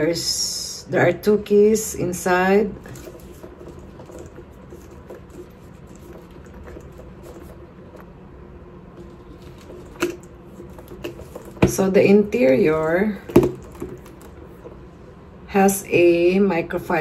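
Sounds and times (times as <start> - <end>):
fingers handling leather handbag: 2.8 - 8.1, 9.0 - 11.8.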